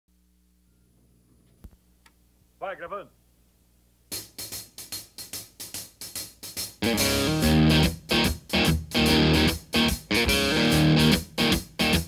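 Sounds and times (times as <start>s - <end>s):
live rock band playing: 6.6s - 12.0s.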